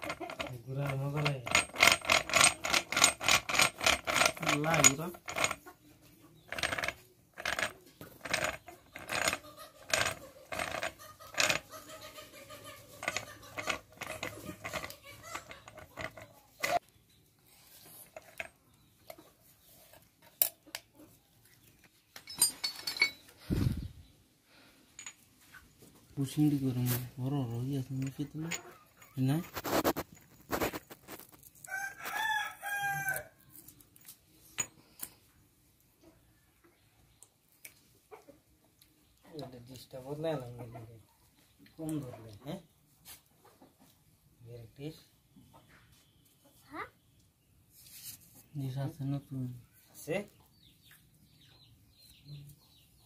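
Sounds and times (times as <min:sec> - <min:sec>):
gears clicking metallically: 0:00.0 - 0:05.6.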